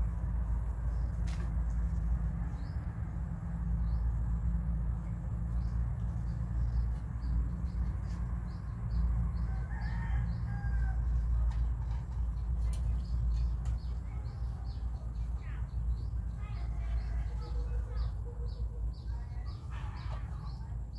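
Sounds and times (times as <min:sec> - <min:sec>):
steady low rumble: 0:00.0 - 0:20.9.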